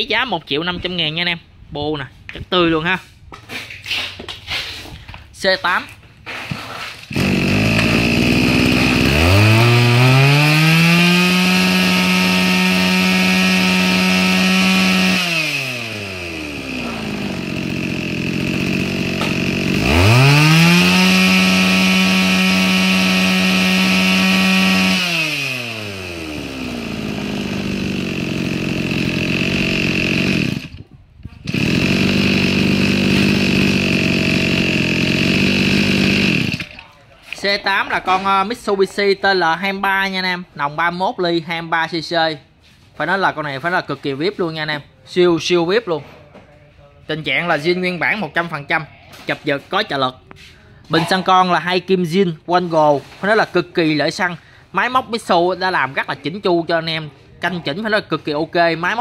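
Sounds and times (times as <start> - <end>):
brush cutter engine idling and revving: 7.1 - 36.8.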